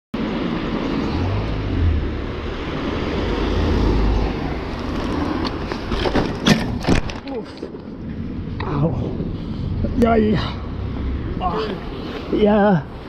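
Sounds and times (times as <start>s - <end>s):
wind and road noise: 0.1s - 13.0s
large vehicle passing: 0.2s - 6.1s, 8.6s - 12.4s.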